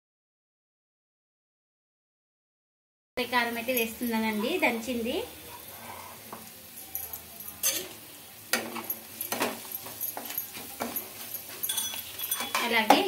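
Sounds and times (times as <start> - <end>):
onions sizzling in hot oil: 3.2 - 13.0
metal spatula scraping pan: 5.5 - 6.4, 8.6 - 13.0.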